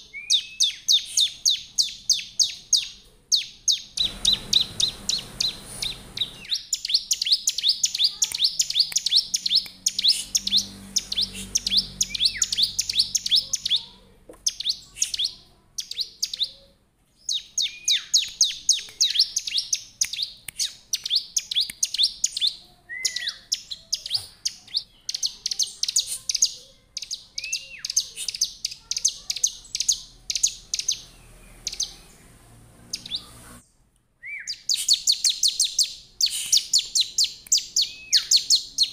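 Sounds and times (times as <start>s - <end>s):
bird singing high sharp chirps: 0.1s - 16.6s, 17.2s - 38.9s.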